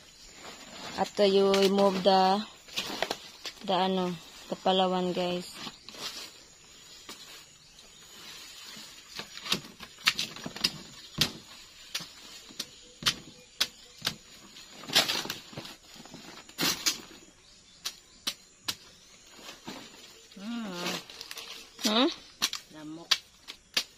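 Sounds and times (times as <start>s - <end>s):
leaves and stalks rustling: 0.0s - 23.9s
machete chopping plant: 9.1s - 14.3s, 21.8s - 23.9s.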